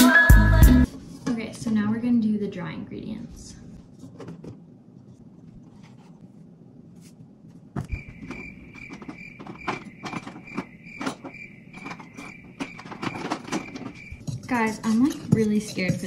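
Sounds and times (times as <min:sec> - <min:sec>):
cricket chirping: 0:07.8 - 0:14.3.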